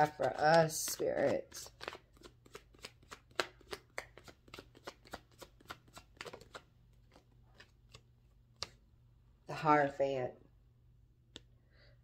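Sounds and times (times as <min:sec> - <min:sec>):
cards being shuffled: 0:00.0 - 0:08.8.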